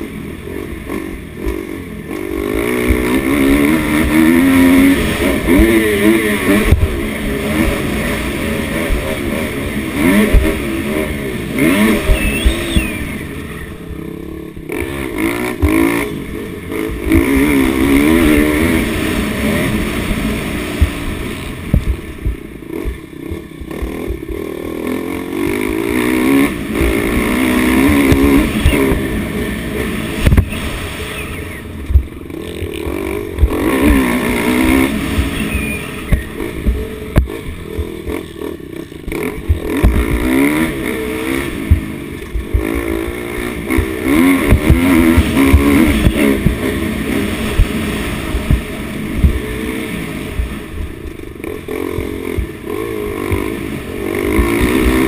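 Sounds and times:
dirt bike engine revving: 0.0 - 55.0
thumps: 39.0 - 40.3.

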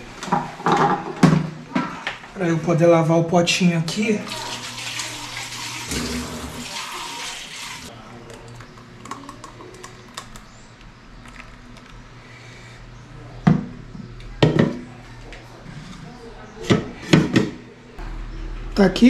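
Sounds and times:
tap water running into sink: 4.3 - 7.9.

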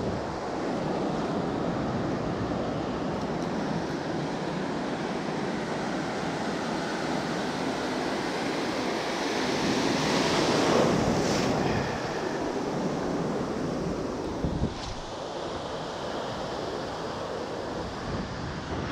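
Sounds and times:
ocean waves breaking: 0.0 - 18.6
wind buffeting microphone: 10.0 - 15.9.

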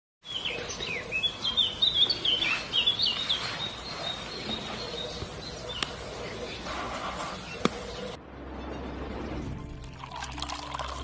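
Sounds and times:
small birds chirping: 0.2 - 8.2.

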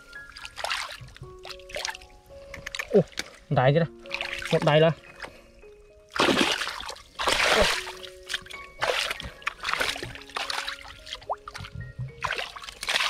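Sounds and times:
hands splashing in muddy water: 0.4 - 2.0, 6.1 - 13.0.

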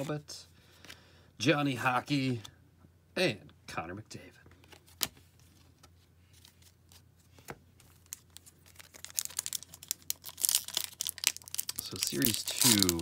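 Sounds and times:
foil wrapper tearing: 8.1 - 13.0.

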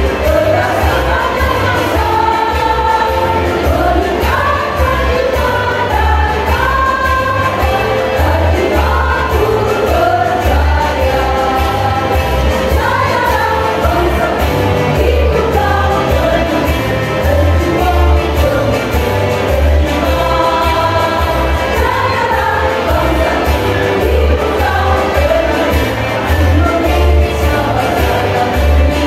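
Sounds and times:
deep bass accompaniment: 0.0 - 29.0
women's choir singing: 0.0 - 29.0.

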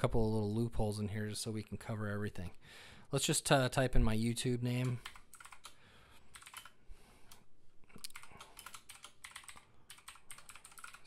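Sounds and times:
faint keyboard typing: 4.6 - 11.0.

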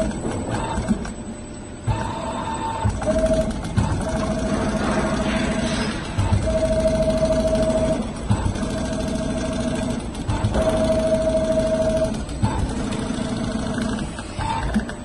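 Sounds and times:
sewing machine motor whine: 1.9 - 14.9.

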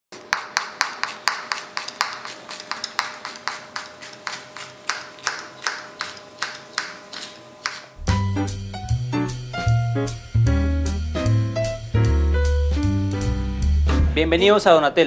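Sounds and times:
knife chopping on cutting board: 0.2 - 8.0.

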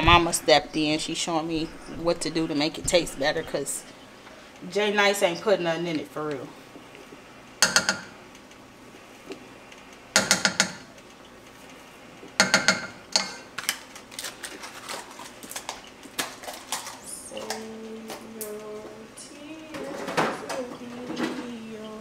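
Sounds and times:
metal spoon knocking dish: 7.6 - 8.2, 10.2 - 10.9, 12.4 - 13.4.

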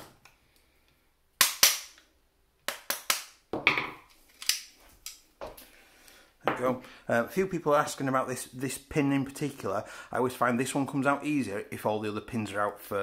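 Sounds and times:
tools knocking on tabletop: 3.5 - 4.0.

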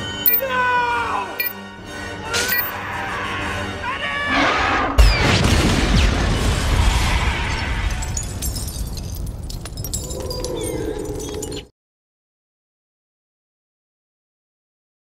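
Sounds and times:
loud deep explosion: 5.1 - 8.1.

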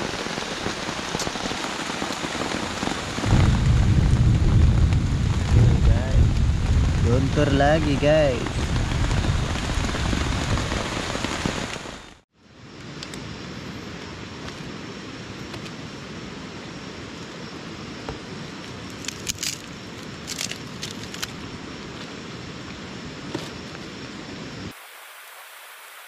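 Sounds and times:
heavy rain falling: 0.0 - 12.2
steady hiss: 0.0 - 26.0.

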